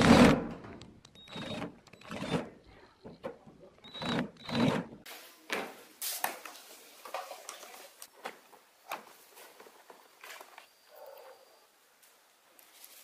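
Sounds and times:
cordless drill spinning: 1.2 - 2.5, 3.8 - 4.9.

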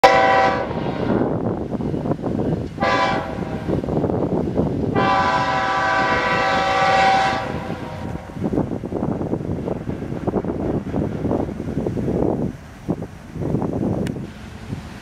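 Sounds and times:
locomotive air horn: 0.0 - 1.2, 2.8 - 3.7, 4.9 - 8.3
low rumble of passing train: 0.0 - 15.0.

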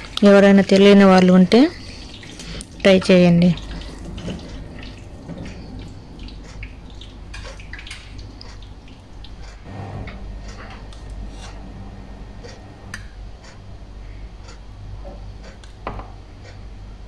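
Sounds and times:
faint clicks and crackles: 0.0 - 13.7
low hum: 0.0 - 17.0.

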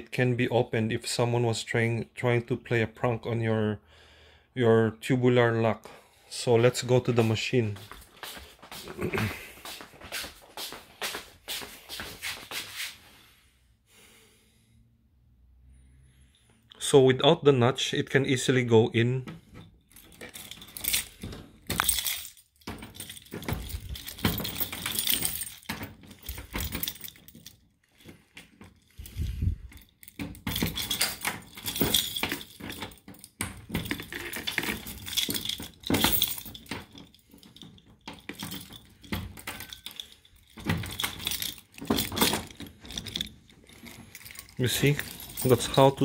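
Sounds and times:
metal clinks and knocks: 19.3 - 46.0
keys jangling against metal: 19.4 - 46.0.

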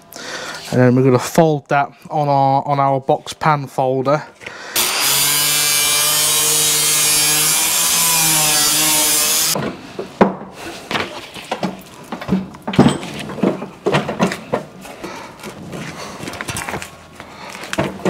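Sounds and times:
angle grinder cutting steel: 4.8 - 9.6.

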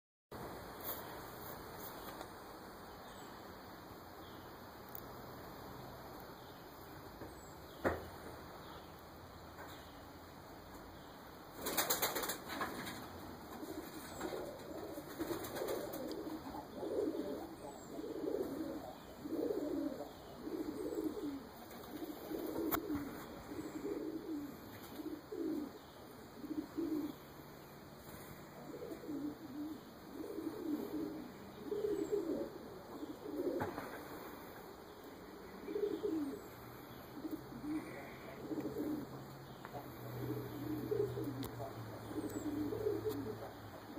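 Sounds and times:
wing flaps: 11.6 - 16.3
pigeons cooing: 11.6 - 43.9.

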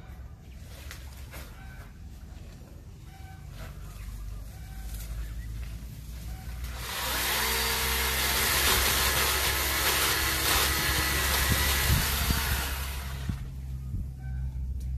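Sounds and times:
electric chainsaw cutting branches: 6.4 - 13.6.

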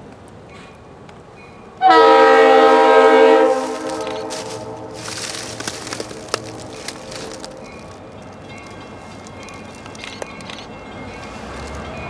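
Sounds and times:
train rumble: 0.0 - 12.0
locomotive air horn chord: 1.8 - 7.4.

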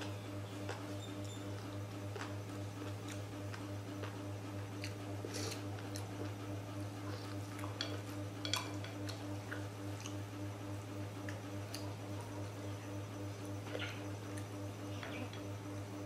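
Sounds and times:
steady low hum: 0.0 - 16.0
chewing and slurping: 0.6 - 10.3.

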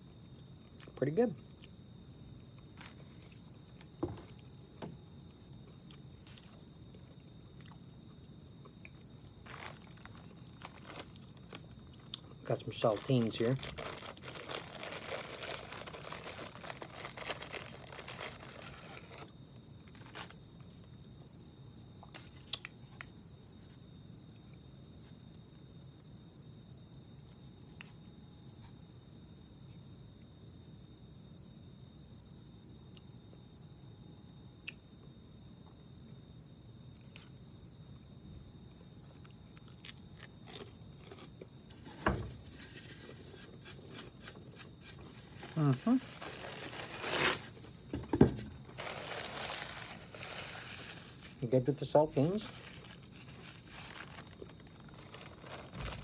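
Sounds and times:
thump: 4.0 - 4.9, 41.9 - 42.4, 47.9 - 48.5
cracker crunching: 8.7 - 20.4, 39.1 - 41.5, 52.4 - 56.0
paper sleeve crinkling: 9.4 - 11.8, 12.4 - 19.3, 19.9 - 20.4, 42.5 - 47.6, 48.7 - 56.0.

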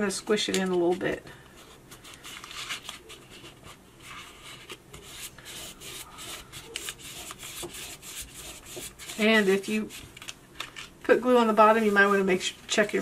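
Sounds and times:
fingers rubbing cardstock: 2.9 - 10.1.

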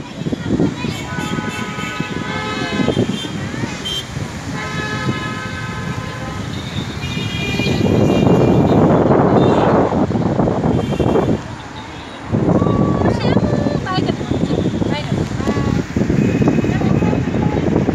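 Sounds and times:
traffic engine rumble: 0.0 - 17.9
car horn honks: 1.0 - 10.0, 10.6 - 12.3.

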